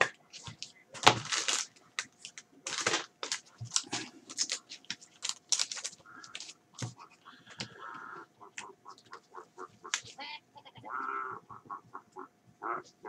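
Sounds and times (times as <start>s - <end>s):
foil wrapper crinkling: 0.0s - 7.0s.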